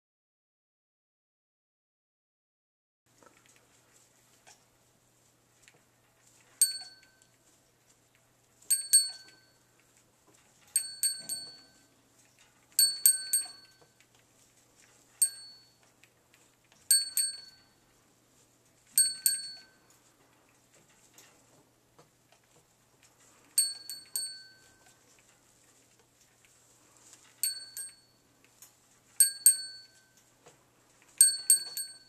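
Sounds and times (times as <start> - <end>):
small metal bell ringing: 6.6 - 7.3, 8.7 - 9.6, 10.7 - 11.9, 12.8 - 14.0, 15.2 - 15.8, 16.9 - 17.8, 19.0 - 19.9, 23.6 - 25.0, 27.4 - 28.3, 29.2 - 30.2, 31.2 - 32.0.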